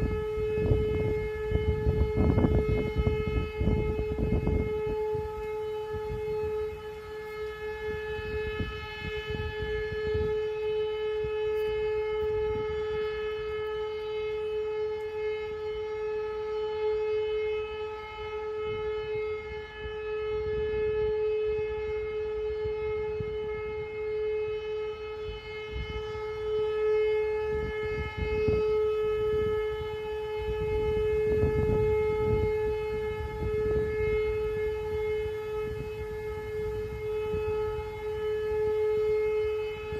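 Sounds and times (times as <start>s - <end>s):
low rumbling gusts: 0.0s - 6.6s, 27.3s - 38.1s
siren steady tone: 0.0s - 39.9s.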